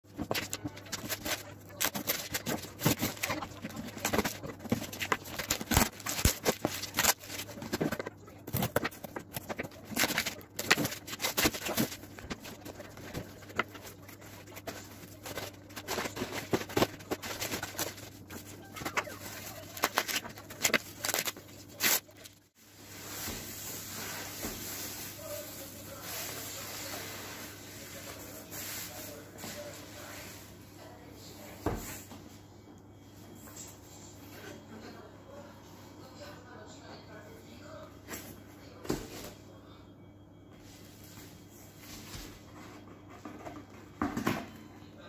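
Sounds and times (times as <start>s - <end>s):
cardboard scraping and rustling: 0.1s - 22.2s
bubble wrap crinkling: 0.1s - 26.9s.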